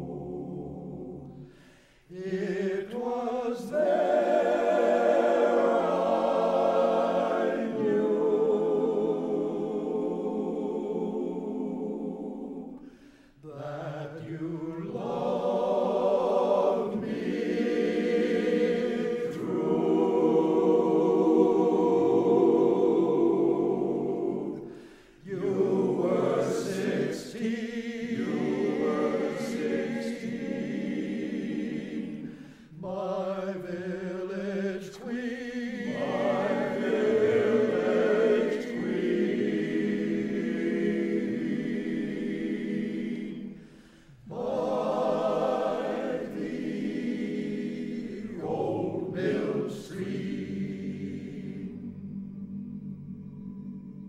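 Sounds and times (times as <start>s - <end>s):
male vocal group singing in harmony: 0.0s - 54.0s
singers breathing: 1.4s - 2.1s, 12.8s - 13.4s, 24.6s - 25.3s, 32.2s - 32.8s, 43.5s - 44.3s.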